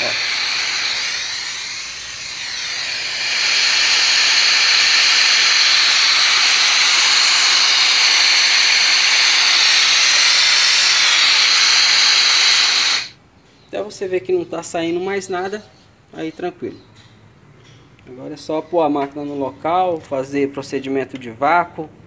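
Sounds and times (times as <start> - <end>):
gas hissing through pipes: 0.0 - 13.2.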